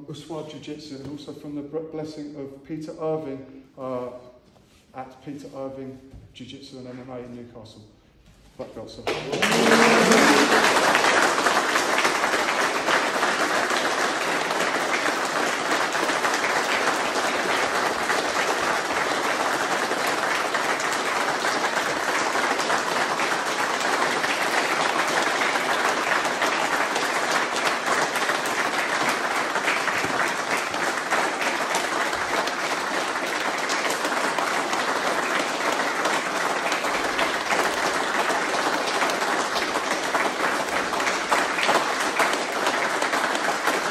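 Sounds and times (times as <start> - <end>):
crowd applauding: 9.1 - 43.9.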